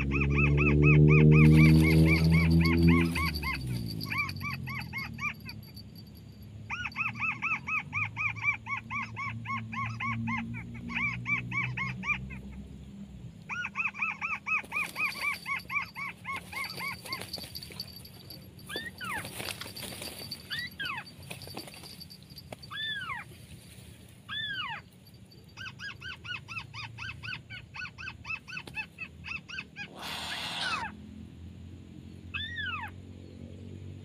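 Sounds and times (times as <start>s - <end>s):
bird down-curving cries: 0.0s - 5.6s, 25.6s - 31.0s, 32.3s - 33.0s
bird calling repeated notes: 0.2s - 5.8s, 13.8s - 18.0s.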